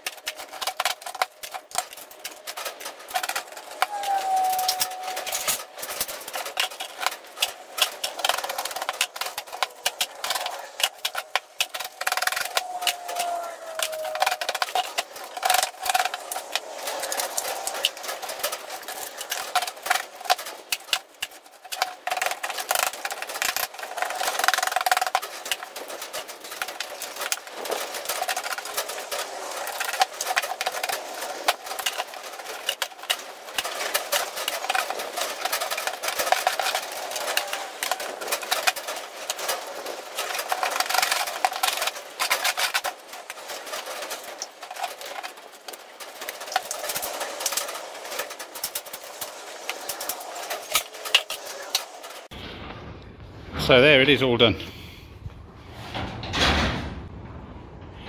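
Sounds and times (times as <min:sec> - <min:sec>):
metal knocks and clattering: 0:55.4 - 0:58.0.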